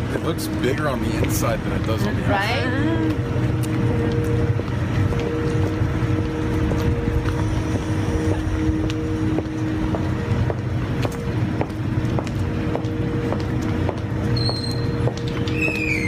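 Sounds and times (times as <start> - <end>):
footsteps on pavement: 0.0 - 16.0
machinery drone: 0.0 - 16.0
tones in hum: 2.4 - 10.7.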